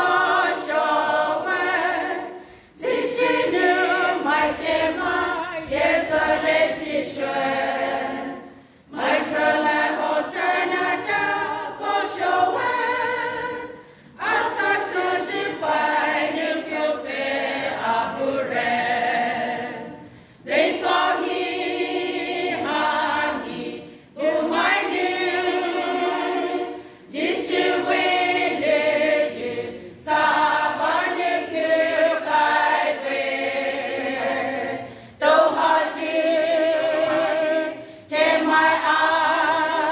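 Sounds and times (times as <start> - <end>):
women's choir singing: 0.0 - 39.9
singers breathing: 2.3 - 2.8, 8.4 - 8.9, 13.7 - 14.2, 20.0 - 20.5, 26.7 - 27.1, 34.8 - 35.2, 37.8 - 38.1.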